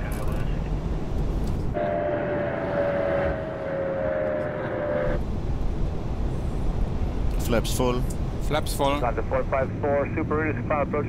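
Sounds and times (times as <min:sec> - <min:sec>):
cockpit air rush and engine: 0:00.3 - 0:11.0
steady double tone: 0:01.8 - 0:05.4.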